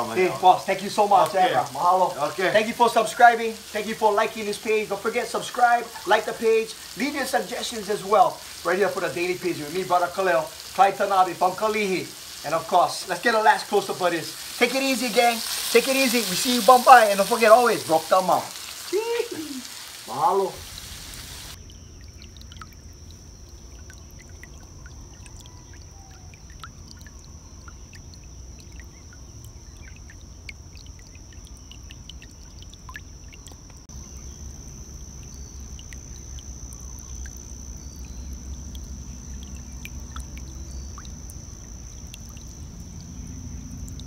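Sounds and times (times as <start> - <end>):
low rumble of flowing water: 0.0 - 44.0
stream trickling over stones: 0.0 - 44.0.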